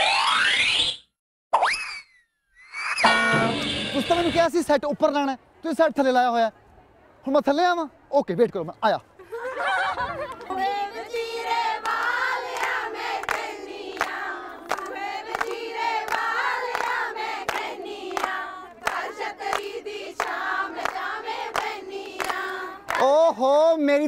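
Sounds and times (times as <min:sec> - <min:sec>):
group of women singing: 0:10.5 - 0:23.0
hand claps: 0:11.8 - 0:23.1.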